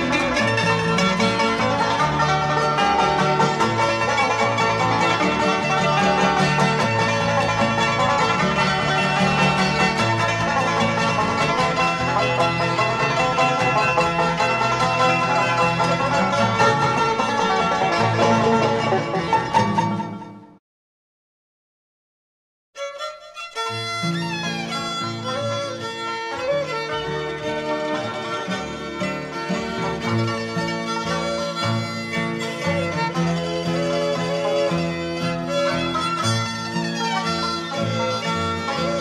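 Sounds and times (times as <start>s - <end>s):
upright bass: 0.0s - 20.4s
banjo picking lead: 0.0s - 20.6s, 22.8s - 39.0s
guitar: 0.0s - 20.6s, 22.8s - 39.0s
mandolin: 0.0s - 20.6s, 22.8s - 39.0s.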